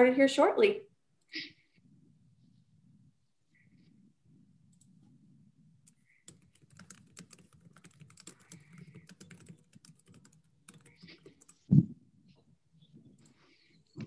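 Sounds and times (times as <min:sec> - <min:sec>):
low room hum: 0:00.0 - 0:14.0
typing on keyboard: 0:05.8 - 0:11.7.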